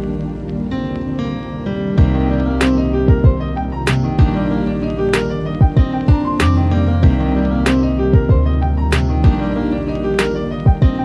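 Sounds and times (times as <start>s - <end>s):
instrumental music with held notes: 0.0s - 11.0s
drum hits: 3.1s - 4.4s, 5.6s - 7.2s.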